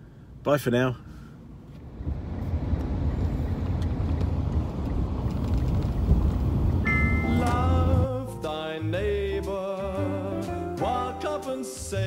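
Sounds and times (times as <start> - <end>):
car engine and road rumble: 0.0 - 9.6.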